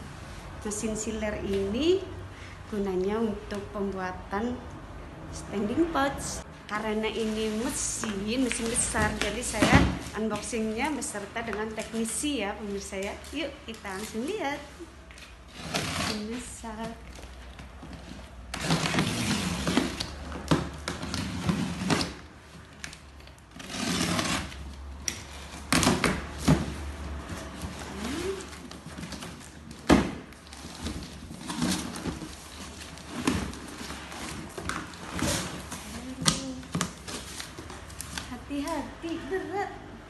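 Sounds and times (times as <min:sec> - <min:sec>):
cardboard flaps scraping and rustling: 0:23.5 - 0:38.2.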